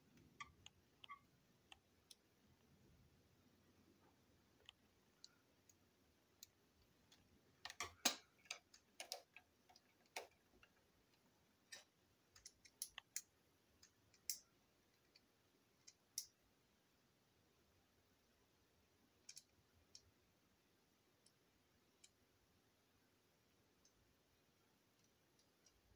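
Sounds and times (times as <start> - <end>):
plastic parts clicking: 7.1 - 10.8.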